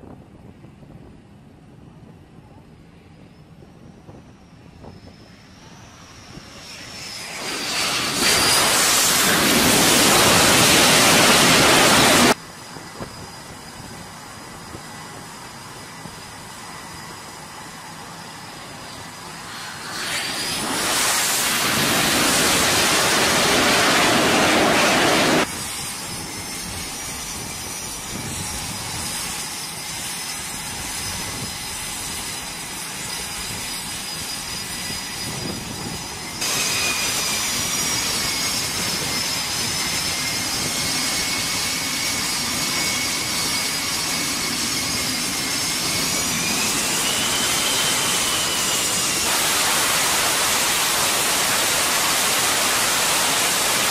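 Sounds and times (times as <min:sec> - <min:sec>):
jet turbine whine: 0:00.0 - 0:53.9
jet engines roaring: 0:00.4 - 0:53.9
hiss: 0:06.0 - 0:12.4, 0:18.8 - 0:28.4, 0:32.9 - 0:53.9.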